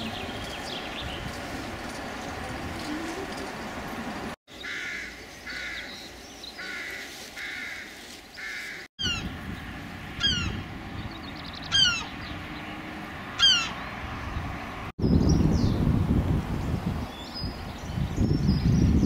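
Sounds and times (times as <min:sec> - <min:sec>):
harsh bird calls: 0:04.5 - 0:14.4.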